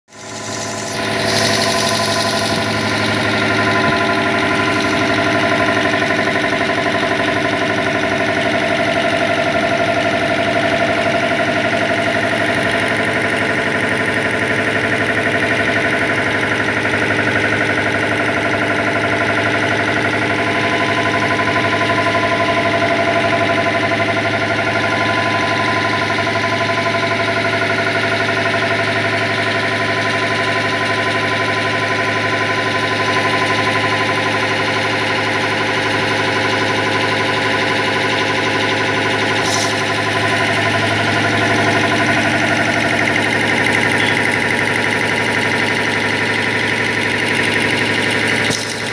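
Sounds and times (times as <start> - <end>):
air compressor running: 0.1 - 48.9.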